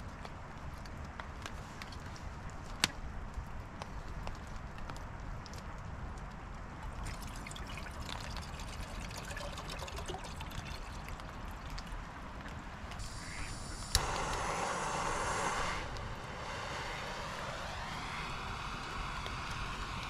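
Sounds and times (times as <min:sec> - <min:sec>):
water pouring into pot: 0:06.9 - 0:12.1
gas stove hissing: 0:13.0 - 0:20.0
stove igniter click: 0:13.3 - 0:16.1.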